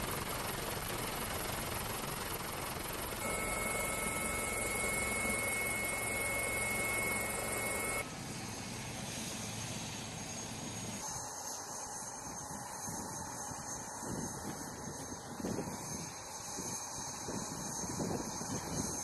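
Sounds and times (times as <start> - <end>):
helicopter rotor and turbine noise: 0.0 - 19.0
thin high whine: 3.2 - 8.8.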